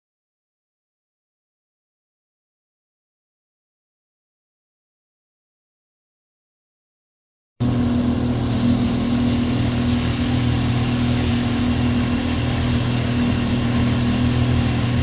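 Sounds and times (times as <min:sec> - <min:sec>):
boat engine running: 0:07.6 - 0:15.0
water rushing in wake: 0:07.6 - 0:15.0.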